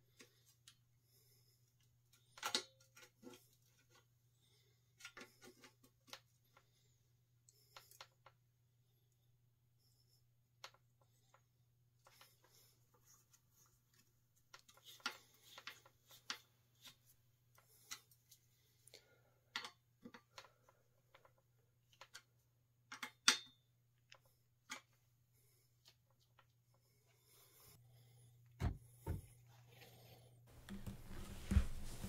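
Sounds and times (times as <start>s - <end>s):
small metal clicks and taps: 2.1s - 3.4s, 19.5s - 22.3s, 22.9s - 25.0s.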